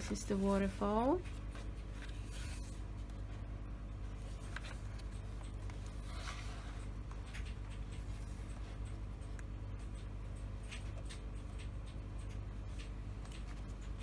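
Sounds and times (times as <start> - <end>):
paper rustling: 0.0 - 3.2, 4.1 - 6.8
steady low hum: 0.0 - 14.0.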